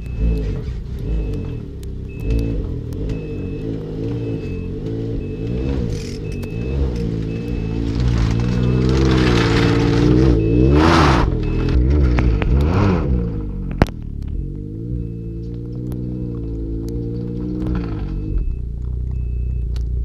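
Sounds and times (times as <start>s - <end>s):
reverse warning beeps: 0.0s - 13.5s, 14.1s - 19.8s
track churning through snow: 2.2s - 13.5s
snowmobile engine revving: 2.3s - 18.4s.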